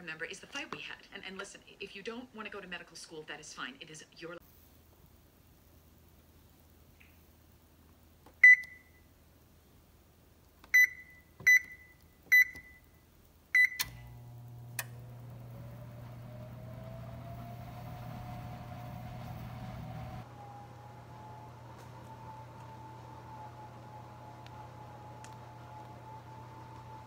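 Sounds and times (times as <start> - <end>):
oven control panel beeping: 10.8 - 12.9, 13.6 - 18.2
oven hum: 13.6 - 27.0
fan whine: 13.8 - 27.0.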